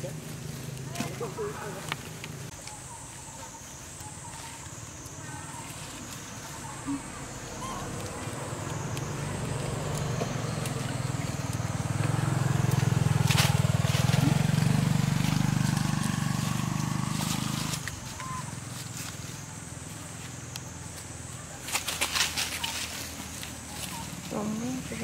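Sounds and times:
low engine rumble: 0.0s - 25.0s.

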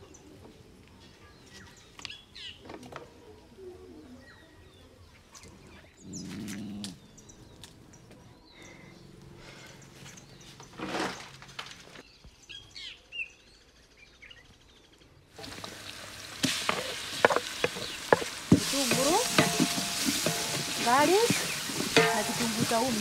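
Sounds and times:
onions sizzling in hot oil: 15.4s - 23.0s
wood fire crackling: 15.4s - 23.0s
wooden spoon scraping a pot: 15.4s - 23.0s.

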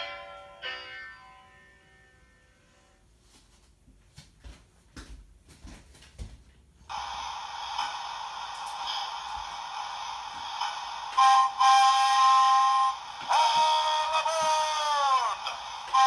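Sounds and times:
model train steady hiss: 6.9s - 16.0s
train whistle blasts: 10.7s - 16.0s.

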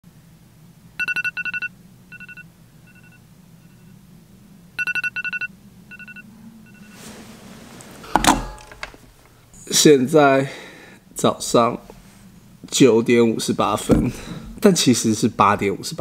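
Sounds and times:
low room hum: 0.1s - 16.0s
phone alarm beeping: 1.0s - 4.0s, 4.8s - 7.0s
soft rustle: 6.4s - 9.5s, 11.5s - 12.5s.

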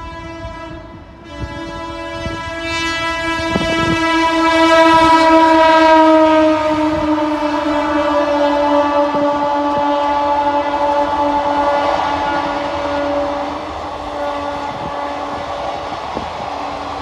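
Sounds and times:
train horn blast: 0.0s - 17.0s.

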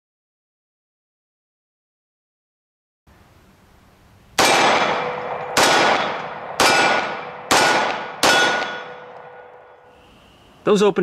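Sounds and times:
pistol shots with echo: 4.4s - 9.8s.

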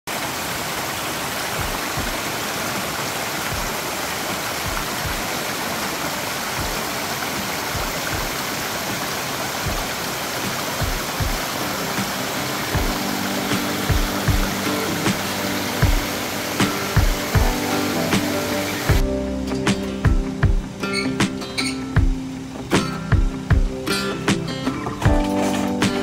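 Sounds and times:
water rushing over stones: 0.1s - 19.4s.

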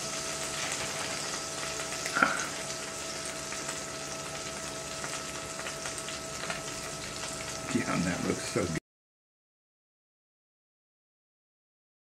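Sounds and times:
grease sizzling in skillet: 0.0s - 8.8s.

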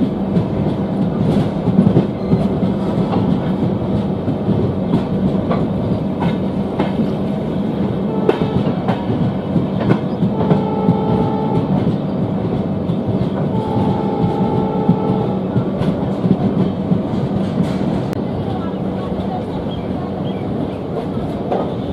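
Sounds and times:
train rumble: 0.0s - 21.9s
train wheels clicking over rail joints: 0.0s - 21.9s
train horn: 8.0s - 9.2s, 10.2s - 12.0s, 13.4s - 15.6s.

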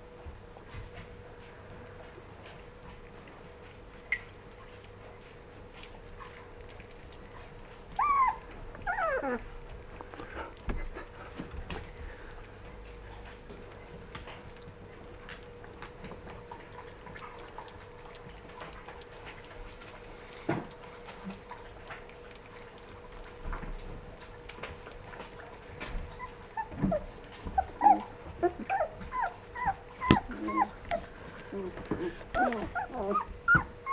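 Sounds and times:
faint steady hum: 0.0s - 33.9s
puppies whimpering: 7.9s - 11.4s, 25.8s - 33.9s
puppy yelps: 8.0s - 9.4s, 27.6s - 31.1s, 32.4s - 33.9s.

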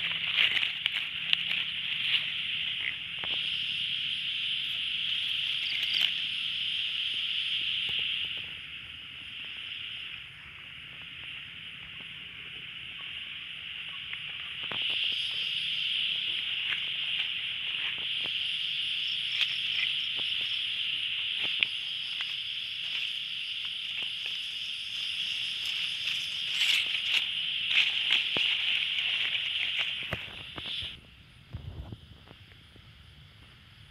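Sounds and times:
leaves rustling: 0.0s - 6.6s, 14.1s - 31.0s
night insects chirring: 0.0s - 33.9s.

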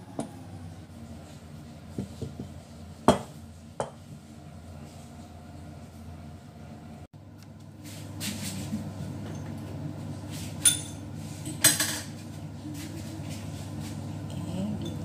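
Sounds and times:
kitchenware clinking: 10.6s - 12.1s.

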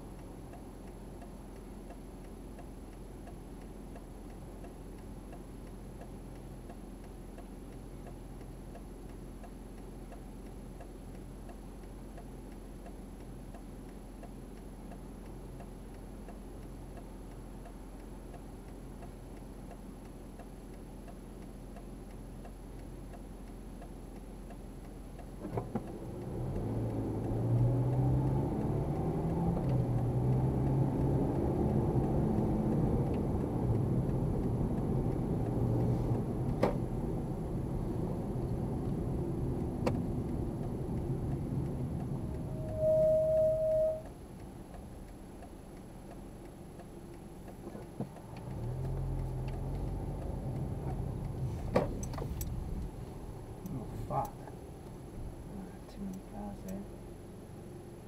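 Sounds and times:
turn indicator ticking: 0.0s - 58.0s
car accelerating: 25.4s - 58.0s
car engine idling: 30.7s - 58.0s.

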